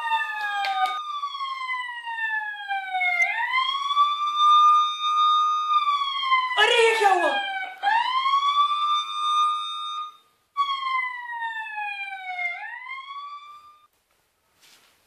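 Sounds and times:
siren wail: 0:00.0 - 0:13.9.

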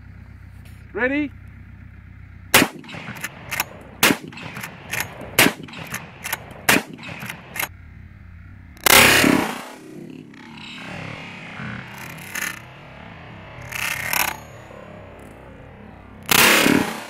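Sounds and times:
shotgun firing: 0:02.5 - 0:07.7, 0:08.8 - 0:10.2, 0:16.2 - 0:17.0
shotgun lever clacks: 0:02.6 - 0:07.7.

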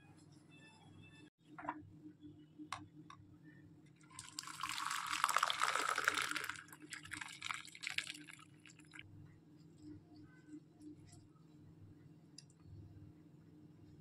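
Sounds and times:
tea pouring into cup: 0:04.0 - 0:09.0.

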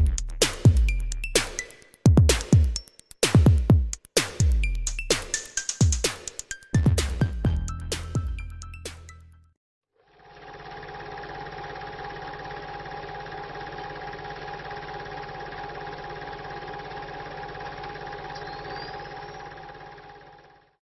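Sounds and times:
machine-like hum: 0:10.1 - 0:20.8.

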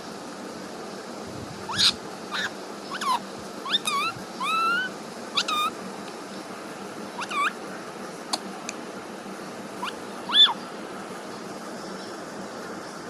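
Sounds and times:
parakeet chirping calls: 0:01.6 - 0:07.8, 0:09.4 - 0:12.2.

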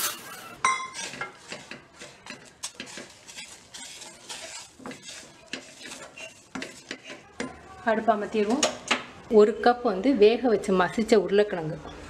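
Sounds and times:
wooden spoon scraping dough in pan: 0:00.0 - 0:07.6.

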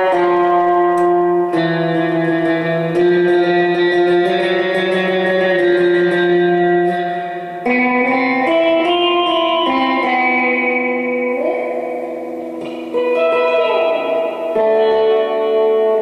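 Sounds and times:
clean electric guitar playing: 0:00.0 - 0:16.0.

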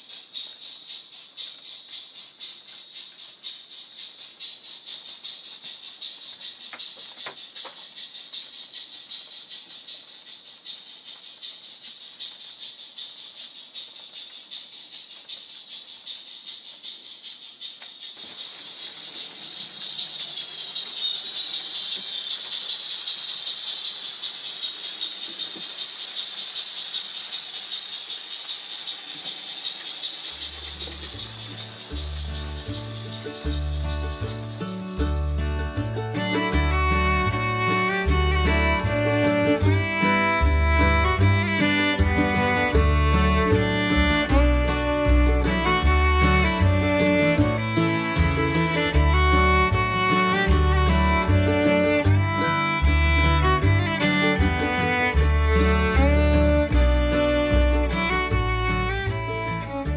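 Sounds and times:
model train wheels and motors hissing: 0:00.0 - 0:35.4
fast even ticking: 0:18.4 - 0:34.7.

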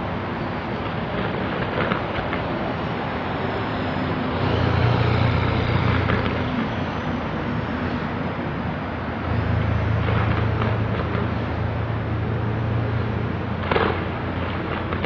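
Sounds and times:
distant fireworks pops and crackles: 0:00.8 - 0:02.6, 0:05.8 - 0:06.8, 0:10.0 - 0:11.5, 0:13.6 - 0:15.0
rumbling roar with low hum: 0:04.3 - 0:06.8, 0:09.3 - 0:15.0.

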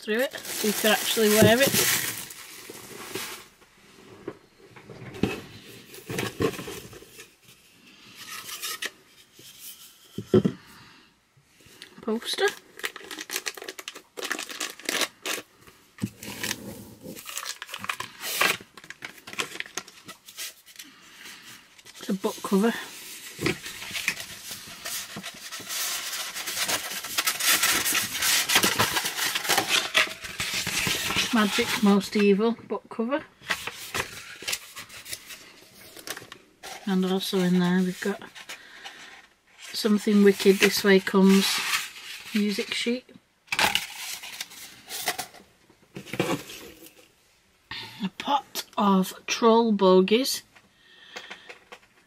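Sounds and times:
paper rustling and crinkling: 0:00.2 - 0:03.6, 0:12.4 - 0:32.3, 0:33.4 - 0:42.8, 0:43.5 - 0:47.1
rubbing and scraping: 0:20.0 - 0:32.2.

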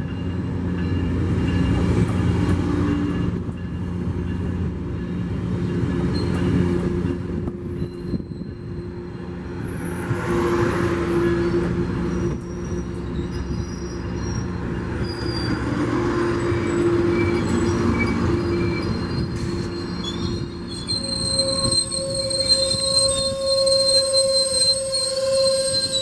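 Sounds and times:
train wheels rumbling on rail: 0:00.0 - 0:26.0
high-pitched wheel squeals: 0:07.6 - 0:09.0, 0:10.9 - 0:26.0.

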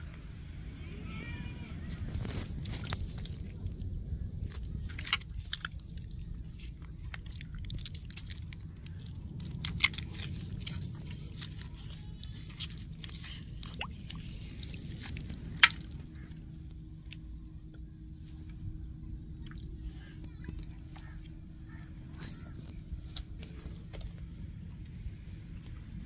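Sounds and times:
steady low rumble: 0:00.0 - 0:26.0
wet squelching: 0:04.4 - 0:16.4.

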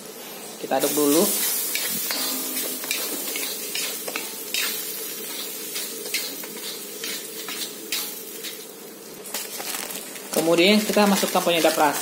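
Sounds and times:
food sizzling: 0:00.0 - 0:12.0
metal spatula scraping wok: 0:01.3 - 0:08.6.

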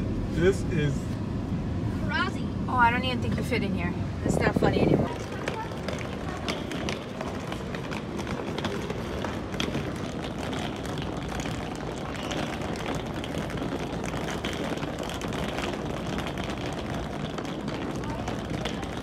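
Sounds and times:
suitcase wheels rumbling on stone: 0:04.2 - 0:19.0.

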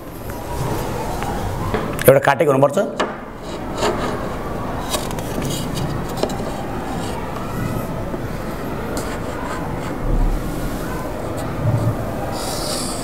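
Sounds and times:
steady background noise: 0:00.0 - 0:13.0
ruler knocking and scraping whiteboard: 0:03.0 - 0:07.5.

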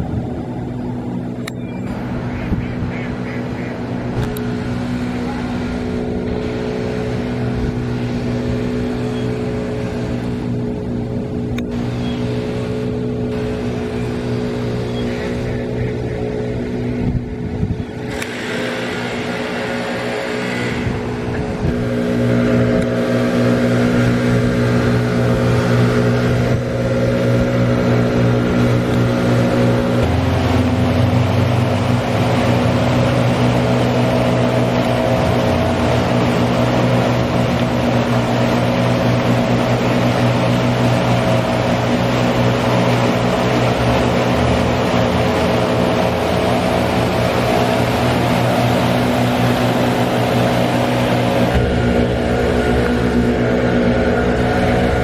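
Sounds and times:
constant low hum: 0:00.0 - 0:55.0
water roaring over spillway: 0:00.0 - 0:55.0.

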